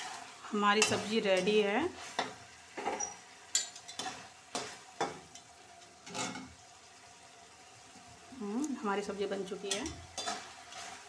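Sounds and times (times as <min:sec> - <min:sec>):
spoon scraping metal pan: 0:00.8 - 0:06.6, 0:09.7 - 0:11.0.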